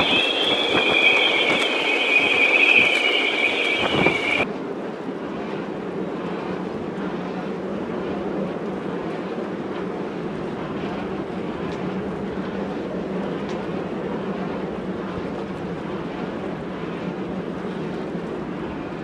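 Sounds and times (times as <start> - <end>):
low hum: 0.0 - 4.5
strong wind over sea: 0.0 - 19.0.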